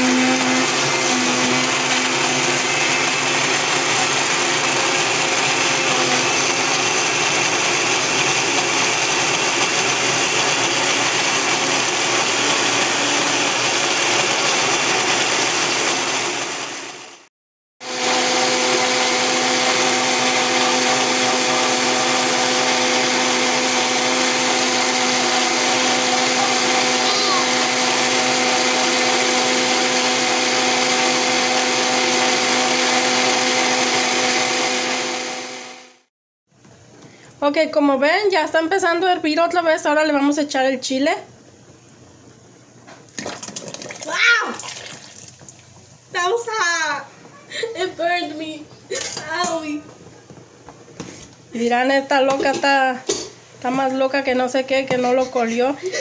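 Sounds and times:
blender motor running: 0.0 - 36.1.

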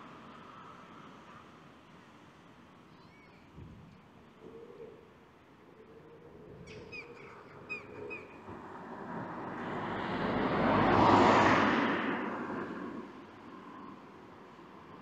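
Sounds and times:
bird chirping: 2.9 - 3.6, 6.6 - 8.4
car passing: 8.0 - 15.0.

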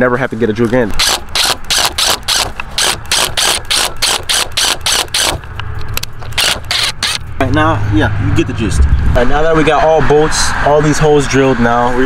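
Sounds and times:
rapid even clicking: 0.9 - 7.2
drill motor humming: 1.0 - 5.5, 6.2 - 7.2.

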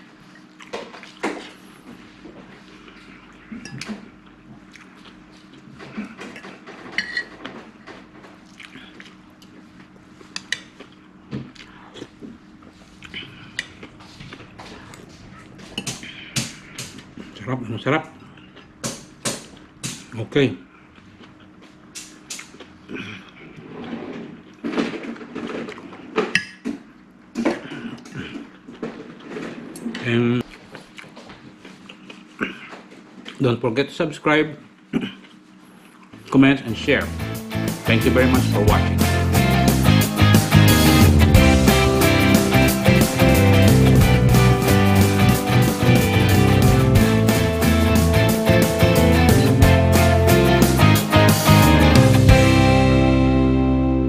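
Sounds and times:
cutlery clinking on a plate: 7.0 - 7.3.

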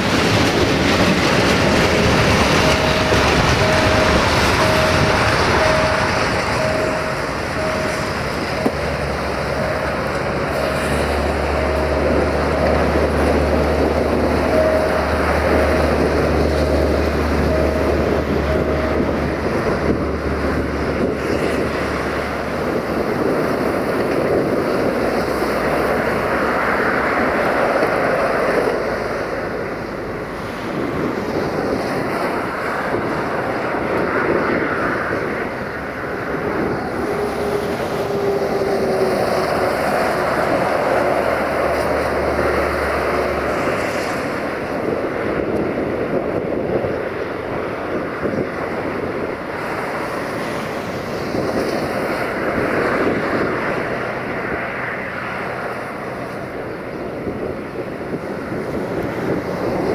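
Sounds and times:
freight wagon wheels rumbling on rails: 0.0 - 59.9.

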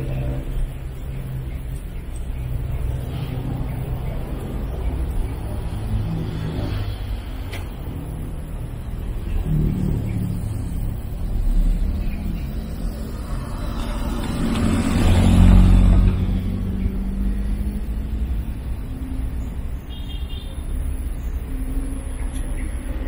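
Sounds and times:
low traffic rumble: 0.0 - 23.0
motor vehicle passing: 0.0 - 23.0.

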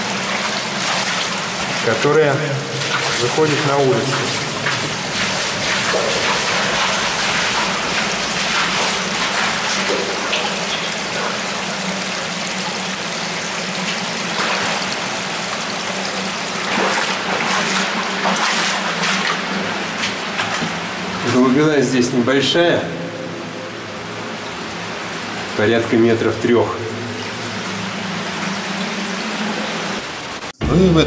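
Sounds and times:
water rushing through a pipe: 0.0 - 22.1.

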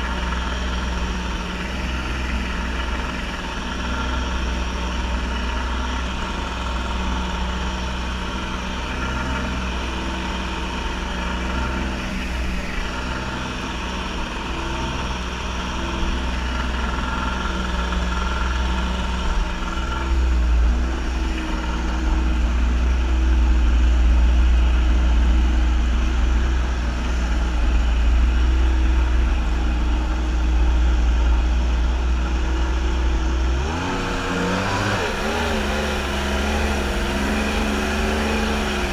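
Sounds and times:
jet ski engine running: 0.0 - 38.9.

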